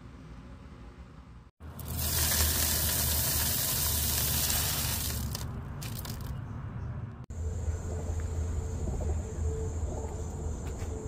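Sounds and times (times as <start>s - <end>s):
grain rattling into plastic bucket: 1.7s - 6.3s.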